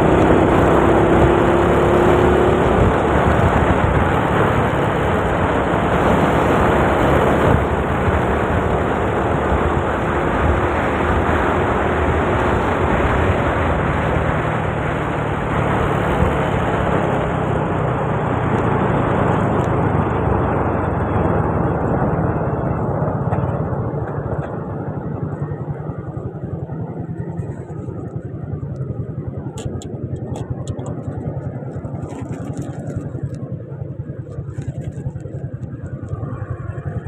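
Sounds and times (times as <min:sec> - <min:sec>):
scooter engine running: 0:00.0 - 0:37.0
wind on microphone: 0:00.0 - 0:37.0.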